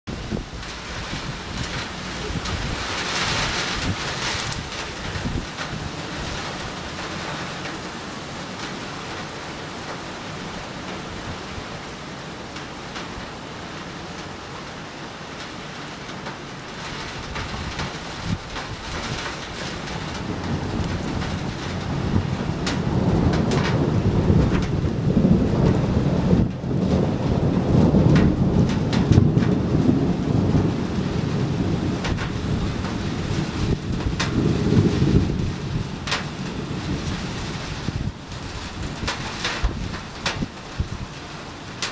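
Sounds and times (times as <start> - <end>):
rolling thunder: 0.1 - 7.7, 17.0 - 41.2
gentle rain patter: 0.1 - 41.9.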